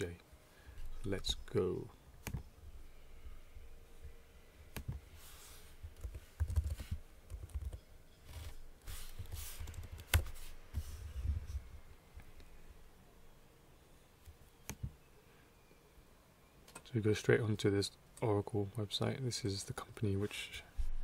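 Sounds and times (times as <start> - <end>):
typing on keyboard: 6.0 - 8.5, 9.6 - 10.3.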